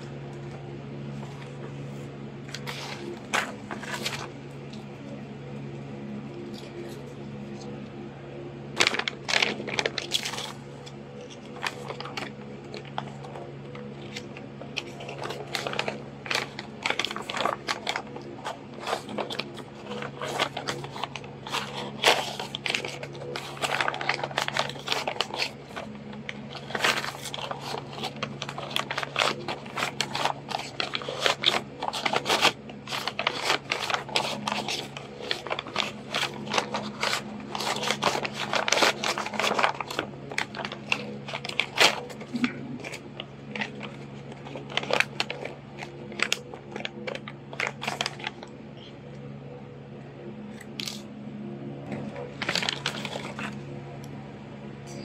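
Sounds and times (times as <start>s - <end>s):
paper rustling and crackling: 0.0s - 8.0s, 8.7s - 48.9s, 50.5s - 51.1s, 51.8s - 53.7s
steady low hum: 0.0s - 55.0s.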